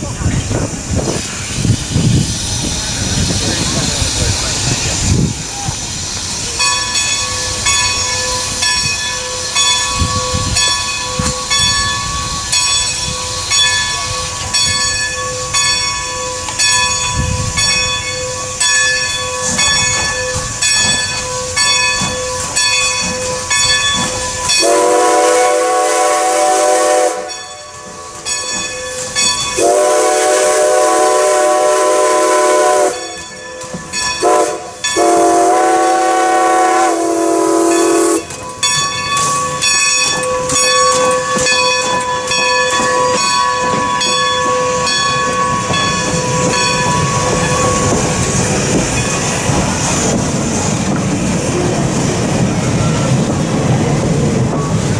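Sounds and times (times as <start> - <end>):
steam locomotive exhaust beat: 0.0 - 54.9
steam whistle blasts: 24.6 - 27.5, 29.6 - 33.2, 34.2 - 38.3.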